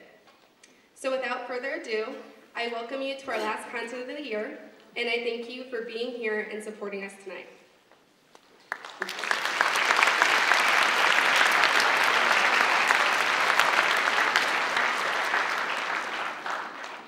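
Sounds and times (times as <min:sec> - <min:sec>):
audience applauding: 0:08.5 - 0:17.0.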